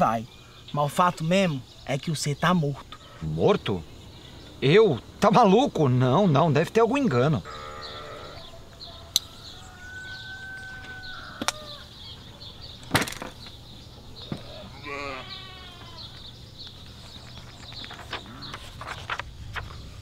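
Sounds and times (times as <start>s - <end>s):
small birds chirping: 0.0s - 20.0s
farm animal bleating: 7.4s - 8.5s, 14.4s - 16.2s, 18.2s - 18.6s
briefcase clicks and thump: 12.8s - 13.5s
papers rustling: 16.6s - 20.0s.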